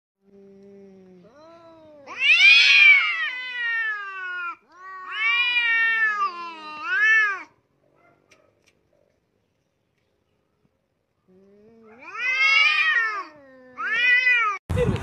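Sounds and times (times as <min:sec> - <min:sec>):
cat yowling: 0:01.4 - 0:07.6, 0:11.8 - 0:14.6.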